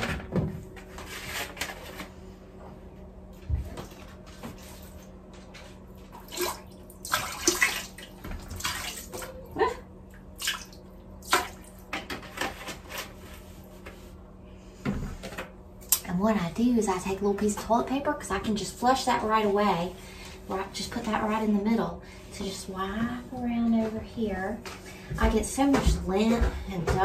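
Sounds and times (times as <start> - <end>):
water splashing in toilet bowl: 6.1 - 9.3, 10.4 - 11.9.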